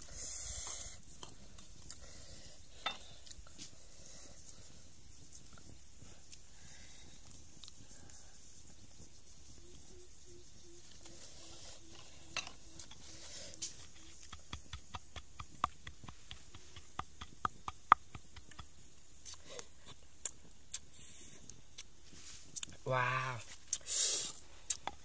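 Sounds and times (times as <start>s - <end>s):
pestle pounding in stone mortar: 14.0s - 18.8s.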